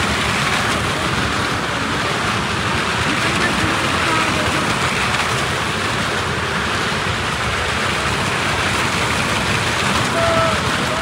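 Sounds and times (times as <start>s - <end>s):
motorcycle and car engines roaring: 0.0s - 11.0s.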